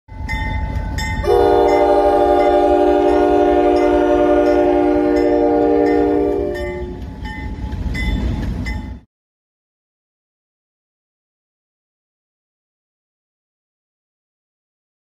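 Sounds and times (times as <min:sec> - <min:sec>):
low train rumble: 0:00.1 - 0:09.1
locomotive air horn blast: 0:01.2 - 0:07.0.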